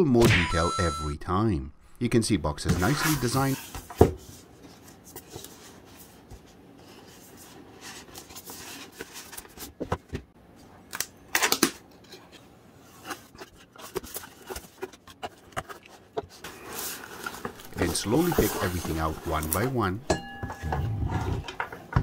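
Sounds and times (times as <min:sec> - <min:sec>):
cardboard rubbing and scraping: 0:16.4 - 0:19.8.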